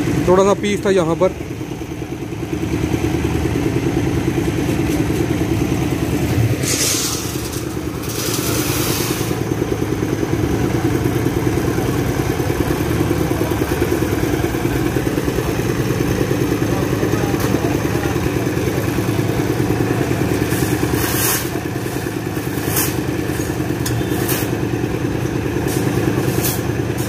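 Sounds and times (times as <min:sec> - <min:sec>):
concrete mixer engine chugging: 0:00.0 - 0:27.0
scraping and rushing noise: 0:06.5 - 0:09.4.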